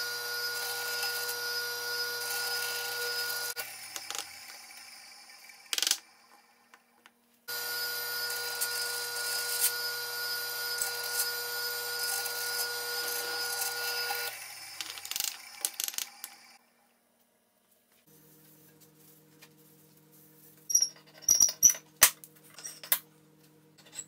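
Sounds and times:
drill press boring wood: 0.0 - 6.0, 7.5 - 16.6.

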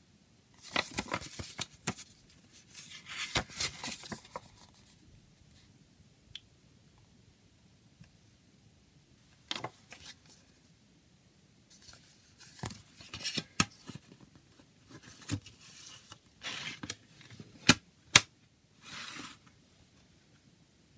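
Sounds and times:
paper booklet rustling: 0.6 - 5.0, 11.7 - 14.3, 14.9 - 17.5.

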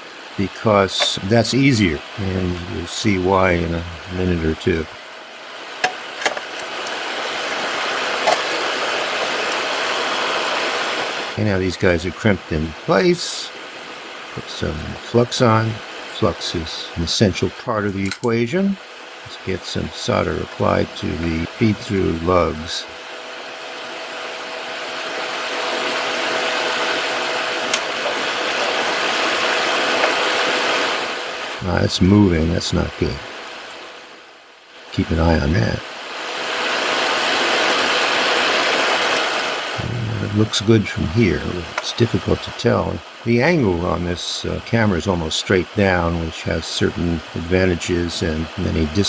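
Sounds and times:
steady hiss: 0.0 - 49.0
pliers and wire clicking: 18.0 - 18.4
flux sizzling under soldering iron: 20.0 - 31.6, 35.3 - 39.8.

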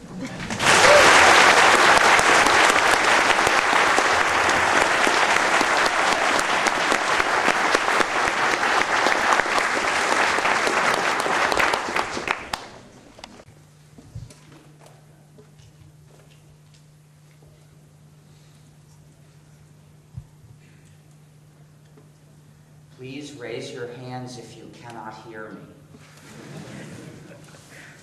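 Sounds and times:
audience applauding: 0.0 - 13.4.

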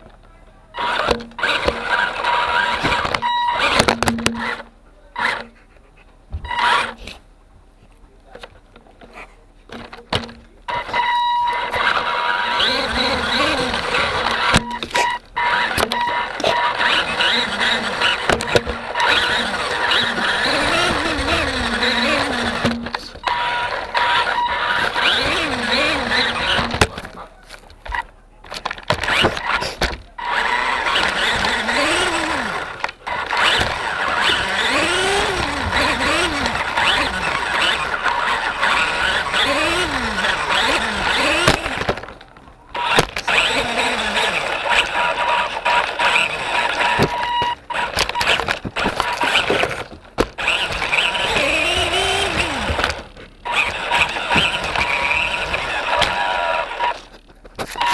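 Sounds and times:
toy truck motor whining: 0.7 - 5.6, 6.5 - 7.2, 10.7 - 27.1, 28.6 - 57.9
tyres running on wooden floor: 11.9 - 14.7, 15.4 - 27.2, 30.3 - 57.0.

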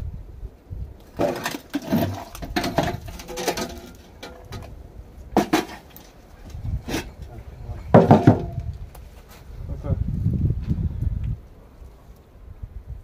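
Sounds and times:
scrap iron clanking: 1.1 - 7.3, 7.9 - 8.7.

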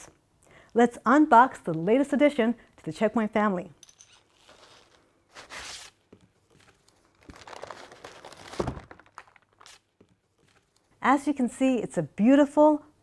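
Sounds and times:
cardboard packaging rustling and tearing: 4.3 - 10.7.

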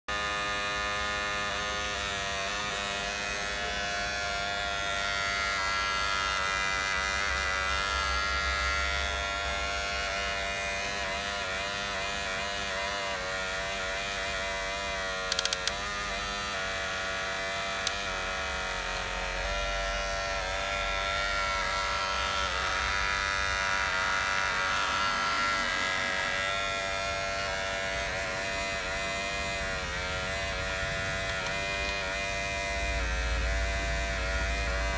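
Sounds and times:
electric motors whining: 0.1 - 34.9
sharp clicks: 15.3 - 15.8.

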